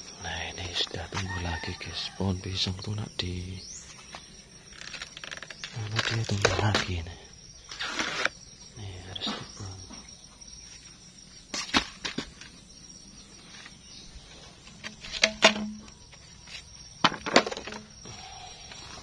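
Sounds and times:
sharp knocks and cracks: 11.5s - 12.5s, 14.8s - 16.0s.

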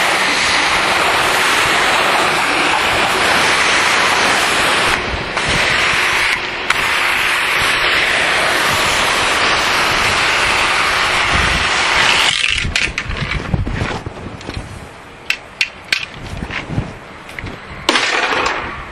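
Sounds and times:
pressure washer hissing: 0.0s - 13.2s.

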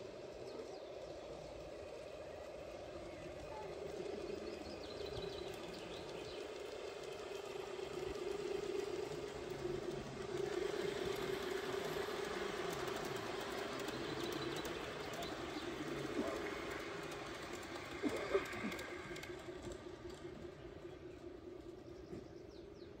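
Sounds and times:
model locomotive whine: 0.0s - 23.0s
wheels rumbling on rails: 0.0s - 23.0s.

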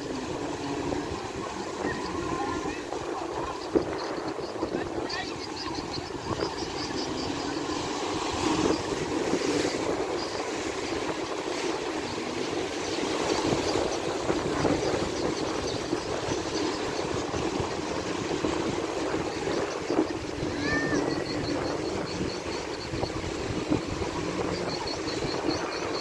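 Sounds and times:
water rushing and churning: 0.0s - 26.0s.

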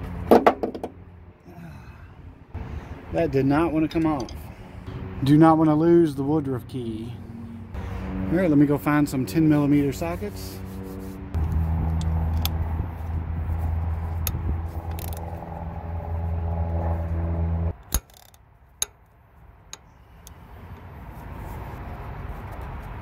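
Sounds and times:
socket wrench clicks: 14.2s - 15.3s, 17.8s - 19.0s.

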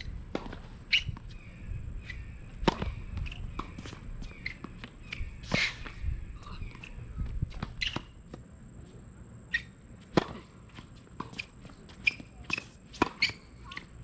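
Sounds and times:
racket hitting tennis ball: 2.0s - 6.0s, 10.0s - 10.5s, 11.2s - 13.8s
tennis ball bouncing: 2.6s - 6.0s, 10.0s - 13.8s.

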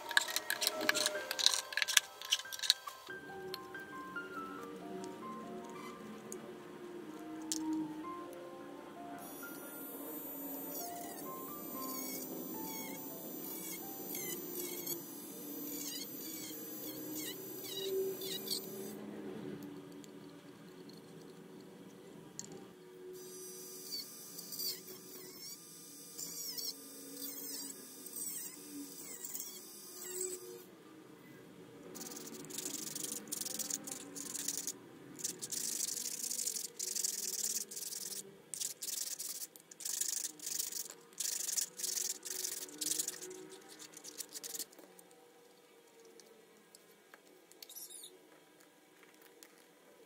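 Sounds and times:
rotary tool whining cutting plastic: 0.0s - 3.2s, 9.2s - 19.0s, 23.2s - 30.7s, 32.0s - 45.0s
plastic rasping on sandpaper: 32.0s - 44.8s.

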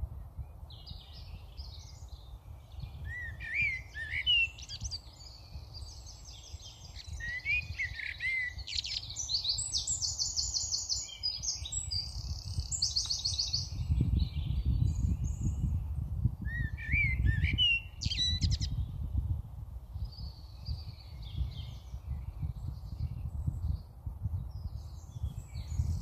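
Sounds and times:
starlings whistling: 3.1s - 5.0s.

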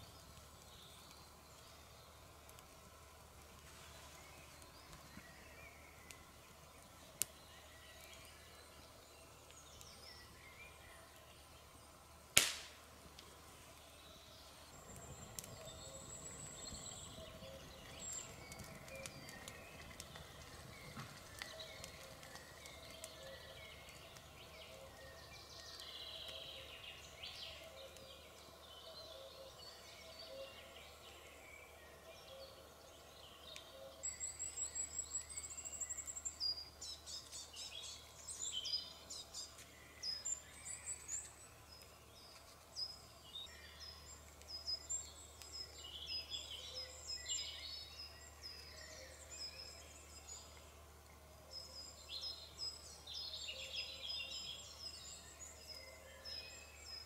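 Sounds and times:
log fire crackling: 0.0s - 57.0s
songbirds chirping and trilling: 0.0s - 57.0s
fire popping loudly: 12.4s - 13.2s, 14.6s - 24.8s.

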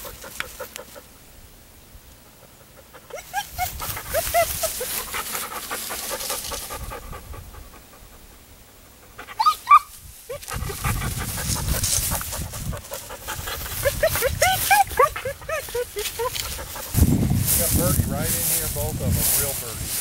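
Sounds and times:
dog panting: 0.0s - 1.1s, 2.2s - 9.5s, 10.3s - 17.0s
dry grass rustling: 0.0s - 1.4s, 2.0s - 8.2s, 8.8s - 20.0s
dog whining: 3.0s - 4.6s, 9.2s - 9.9s, 13.7s - 16.7s.

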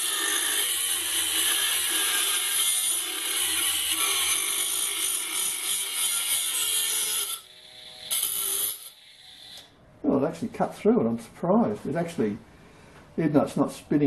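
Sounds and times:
rotary tool grinding steel: 0.0s - 9.7s.

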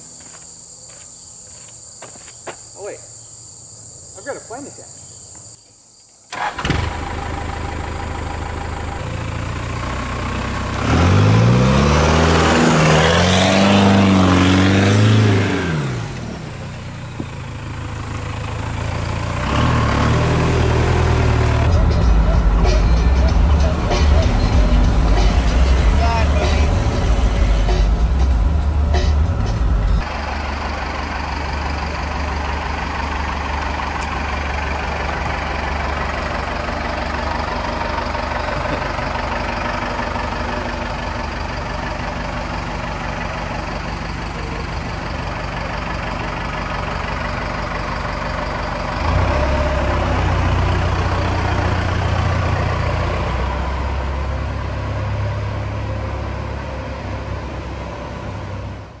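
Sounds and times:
truck engine idling: 6.3s - 59.0s.

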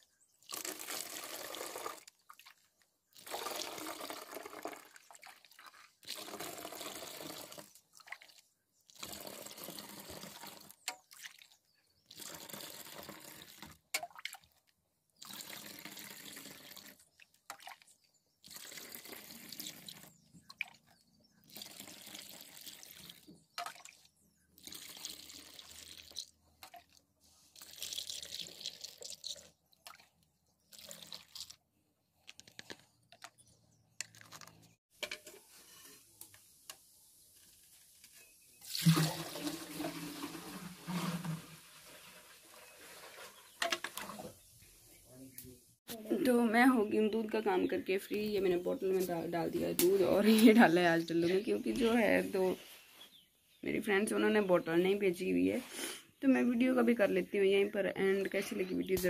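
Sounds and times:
milk pouring into plastic bottle: 0.4s - 8.4s, 15.2s - 17.7s, 18.4s - 20.2s, 24.6s - 30.0s, 30.7s - 31.6s, 38.6s - 43.3s.

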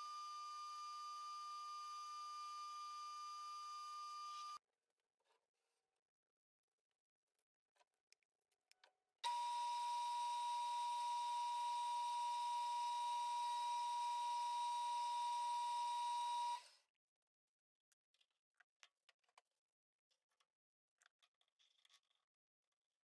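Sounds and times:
metal lathe drilling whine: 9.3s - 16.6s.

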